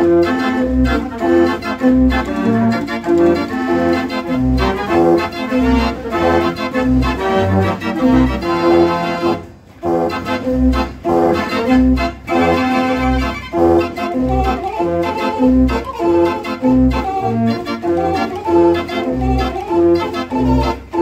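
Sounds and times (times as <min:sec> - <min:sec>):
dance organ playing: 0:00.0 - 0:21.0.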